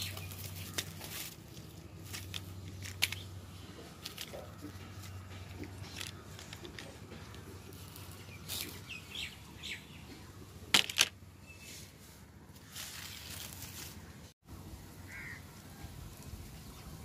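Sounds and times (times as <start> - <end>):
dry bark rustling and crackling: 0.0 - 9.4, 12.5 - 14.3.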